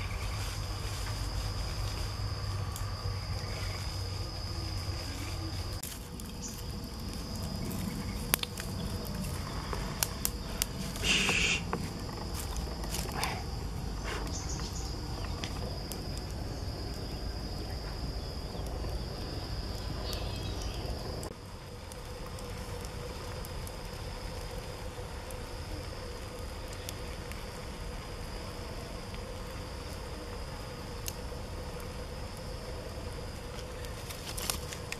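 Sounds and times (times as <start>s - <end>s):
low rumble: 0.0s - 29.2s
high-pitched insect drone: 0.0s - 34.9s
brief hiss: 11.0s - 11.7s.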